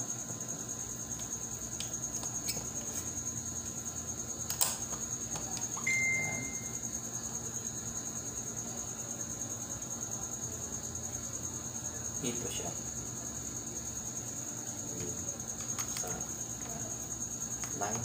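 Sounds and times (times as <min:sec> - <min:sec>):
brief high ring: 0:05.9 - 0:06.8.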